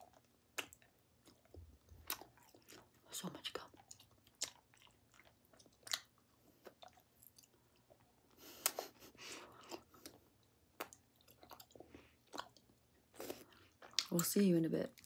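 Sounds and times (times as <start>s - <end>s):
gum chewing smacks: 0.0s - 2.9s, 3.5s - 14.2s.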